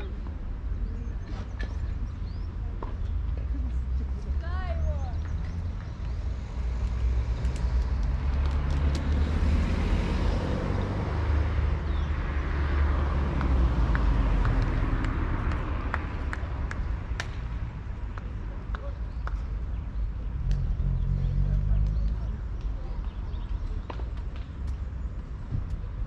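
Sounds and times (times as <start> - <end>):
road vehicle noise: 0.0 - 26.0.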